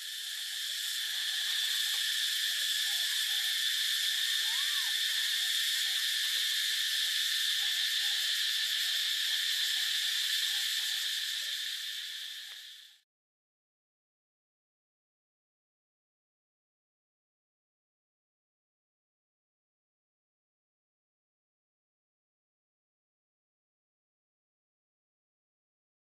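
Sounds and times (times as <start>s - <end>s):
insects buzzing: 0.0s - 13.0s.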